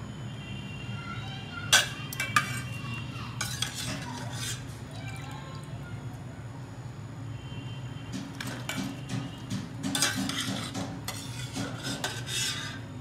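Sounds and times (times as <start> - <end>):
steel skimmer scraping a pot: 1.8 - 2.8, 3.4 - 4.8, 8.3 - 13.0.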